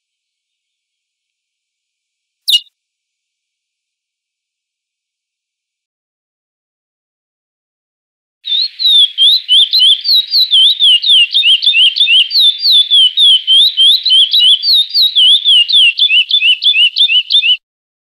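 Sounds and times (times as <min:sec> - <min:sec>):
finch singing whistled notes: 0:02.5 - 0:02.7, 0:08.5 - 0:17.6.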